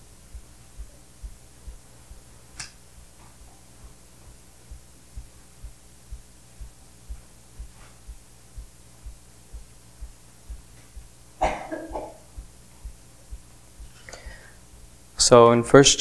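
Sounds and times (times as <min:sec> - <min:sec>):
faint low thumps: 0:00.0 - 0:15.4
person coughing: 0:11.4 - 0:12.3.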